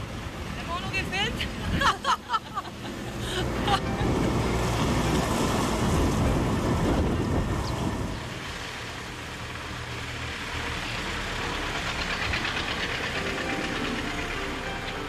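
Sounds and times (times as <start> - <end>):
vehicle engine humming: 0.0 - 15.0
fast engine rattle: 5.7 - 15.0.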